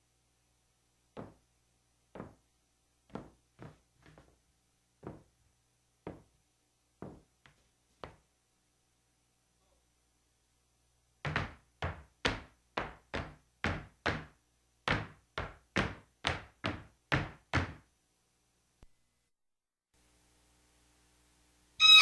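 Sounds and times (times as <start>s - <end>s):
shoes stamping on wooden floor: 1.2s - 1.4s, 2.1s - 2.4s, 3.1s - 4.4s, 5.0s - 5.3s, 6.0s - 6.3s, 7.0s - 8.2s, 11.2s - 17.8s.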